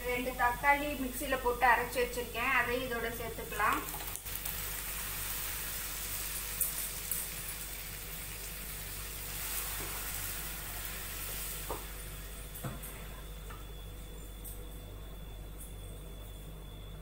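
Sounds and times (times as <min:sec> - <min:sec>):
onions sizzling in oil: 0:04.2 - 0:12.3.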